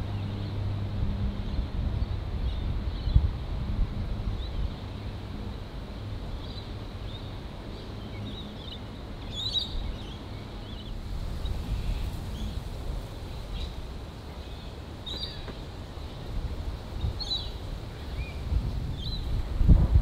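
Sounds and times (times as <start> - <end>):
small birds chirping: 4.3 - 19.4.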